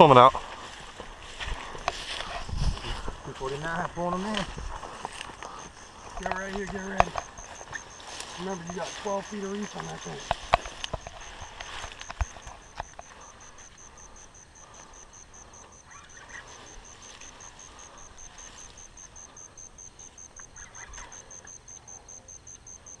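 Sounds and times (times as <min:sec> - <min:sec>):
insect chirping: 0:00.0 - 0:23.0
sharp clicks: 0:05.4 - 0:13.8.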